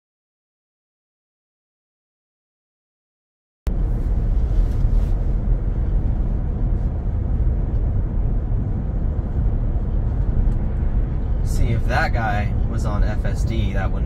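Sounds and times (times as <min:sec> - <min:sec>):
wind noise in car cabin: 0:03.7 - 0:14.0.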